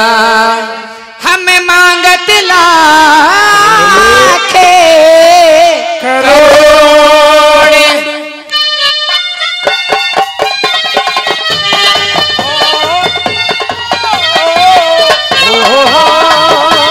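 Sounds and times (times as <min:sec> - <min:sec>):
band rhythmic drumming: 0:09.1 - 0:16.9.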